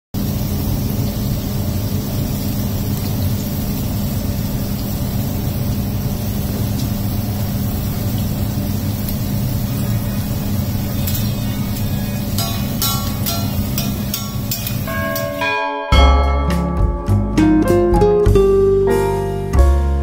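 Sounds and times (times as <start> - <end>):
low mechanical rumble and hum: 0.2 - 14.6.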